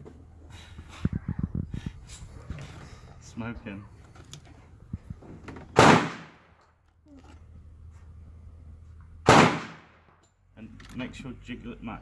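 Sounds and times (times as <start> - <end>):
gunshots with echo: 5.8 - 6.4, 9.3 - 10.1.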